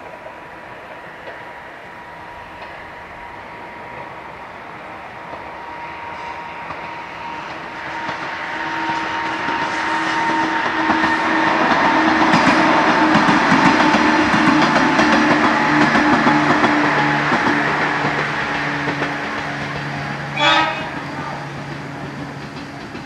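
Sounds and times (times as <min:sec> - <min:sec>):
electric train passing: 0:00.0 - 0:23.0
wheels clattering over rails: 0:10.6 - 0:23.0.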